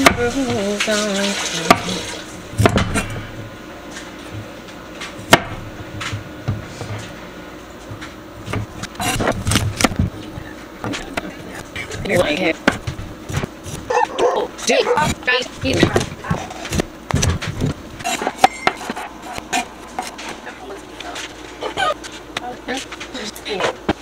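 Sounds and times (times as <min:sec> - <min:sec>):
knife chopping on wooden board: 0:02.6 - 0:03.0.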